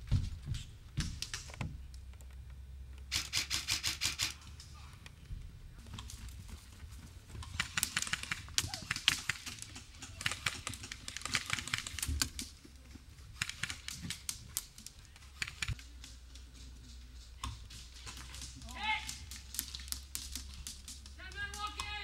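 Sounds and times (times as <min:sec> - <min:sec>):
airsoft guns firing bursts: 0:03.1 - 0:04.4, 0:07.5 - 0:12.4.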